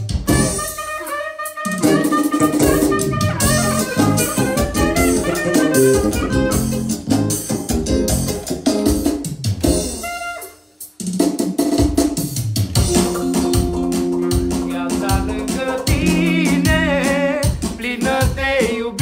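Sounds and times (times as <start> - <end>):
electronic keyboard: 0.0 - 11.0, 12.7 - 17.7
drum kit: 0.0 - 19.0
electric guitar: 1.7 - 9.8, 12.8 - 17.6.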